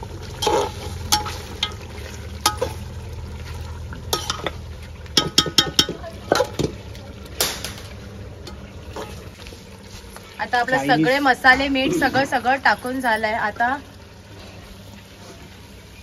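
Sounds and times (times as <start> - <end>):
metal spatula scraping pot: 0.3 - 2.9.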